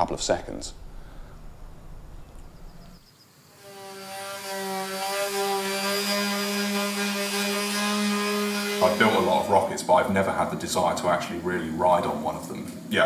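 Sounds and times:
electric sander running: 3.6 - 9.6.

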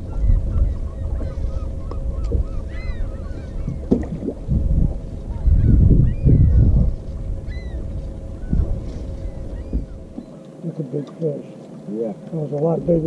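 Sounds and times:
short bird calls: 0.0 - 3.9
faint steady hum: 0.0 - 13.0
wind and water rumble: 0.0 - 13.0.

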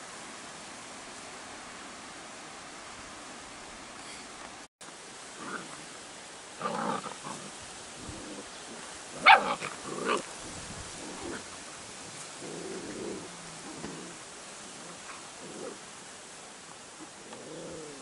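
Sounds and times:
puppies growling: 6.6 - 10.3, 10.9 - 15.9, 17.1 - 18.0
puppies barking: 9.2 - 10.3.

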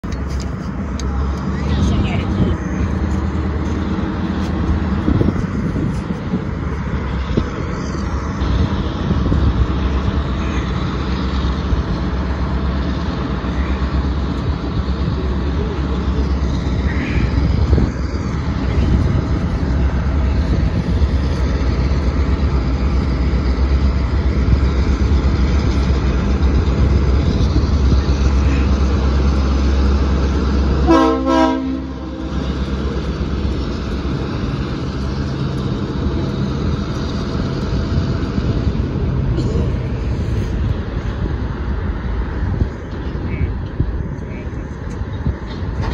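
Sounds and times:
diesel locomotive engine rumble: 0.0 - 45.9
train horn toot: 30.8 - 32.3.

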